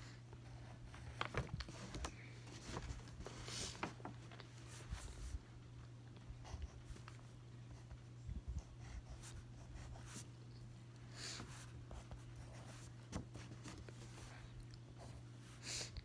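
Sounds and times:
steady low hum: 0:00.0 - 0:16.0
pen scratching on paper: 0:08.6 - 0:10.3.

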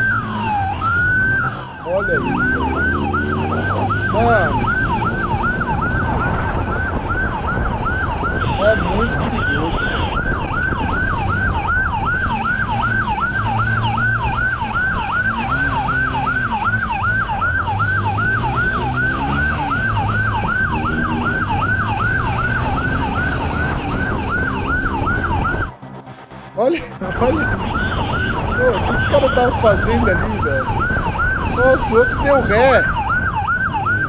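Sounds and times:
police siren yelping: 0:00.0 - 0:25.8, 0:26.8 - 0:34.0
motorcycle engine: 0:00.0 - 0:34.0.

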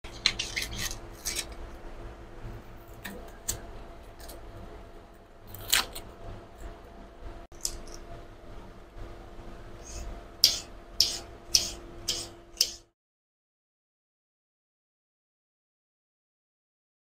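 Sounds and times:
low steady hum: 0:00.0 - 0:12.9
onion skin crackling and tearing: 0:00.2 - 0:01.6, 0:05.5 - 0:06.1.

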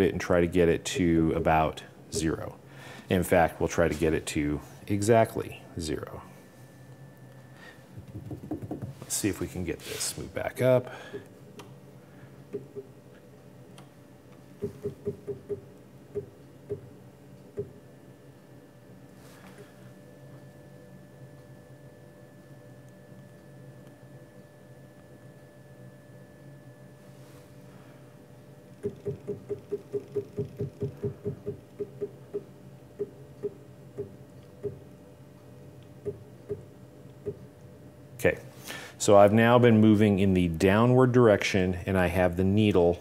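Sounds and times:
faint steady hum: 0:00.0 - 0:43.0
stepper motor ticks: 0:14.6 - 0:16.8, 0:28.8 - 0:34.8.

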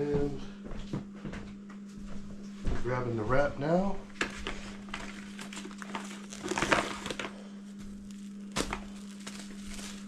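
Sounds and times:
plastic cling wrap crinkling: 0:04.4 - 0:10.0.

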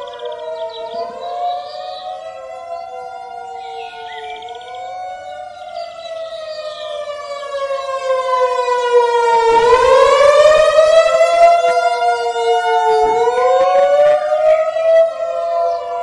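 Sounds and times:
warning siren wailing: 0:00.0 - 0:16.0.

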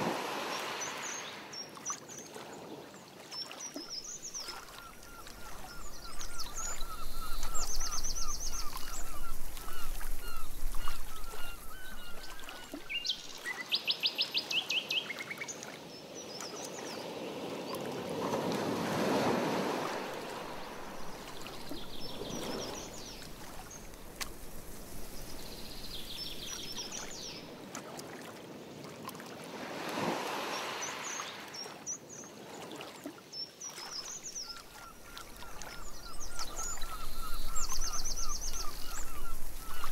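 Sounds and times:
paddle strokes swishing through water: 0:00.0 - 0:13.5, 0:17.7 - 0:31.8, 0:32.4 - 0:39.9
birds chirping and trilling: 0:04.0 - 0:13.8, 0:20.5 - 0:23.9, 0:25.0 - 0:27.5, 0:34.2 - 0:39.9.

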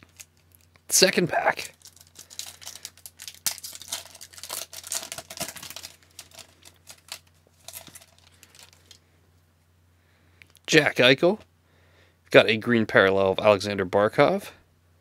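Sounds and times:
foil wrapper tearing and crinkling: 0:00.0 - 0:00.5, 0:01.5 - 0:09.0.

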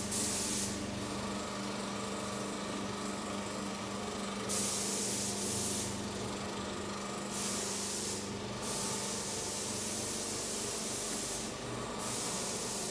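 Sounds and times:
paint spray hissing: 0:00.0 - 0:00.8, 0:04.5 - 0:05.9, 0:07.3 - 0:12.9.

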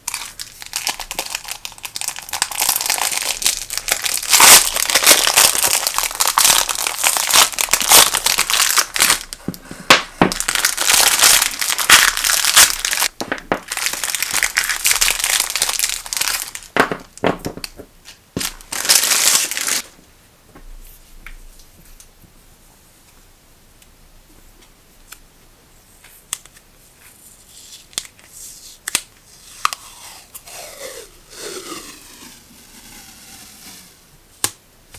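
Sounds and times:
plastic film crinkling: 0:00.0 - 0:20.0.

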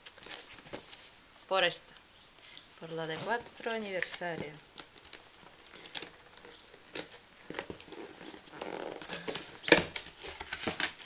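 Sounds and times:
box clattering: 0:03.1 - 0:11.0.

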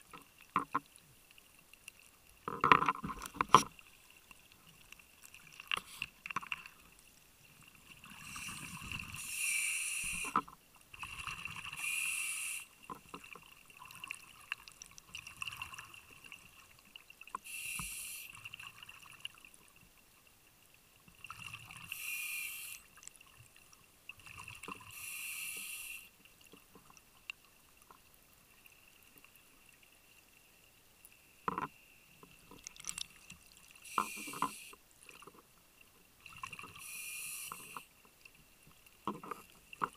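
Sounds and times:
scuba regulator hissing and bubbling: 0:08.0 - 0:10.5, 0:11.5 - 0:12.9, 0:17.4 - 0:18.5, 0:21.8 - 0:22.9, 0:24.8 - 0:26.1, 0:33.8 - 0:34.8, 0:36.7 - 0:37.9.

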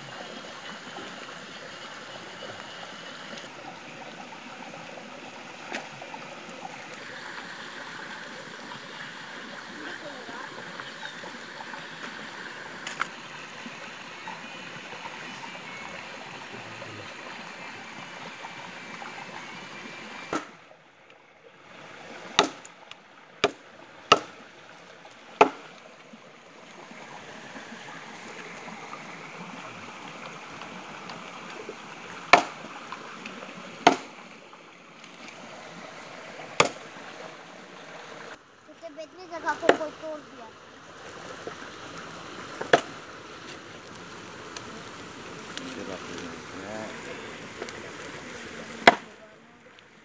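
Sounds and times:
fire crackling and popping: 0:40.9 - 0:48.9.

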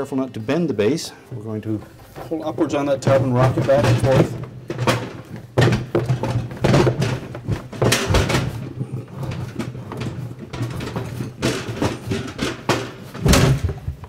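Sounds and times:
plastic tub knocking and clattering: 0:01.3 - 0:14.0.

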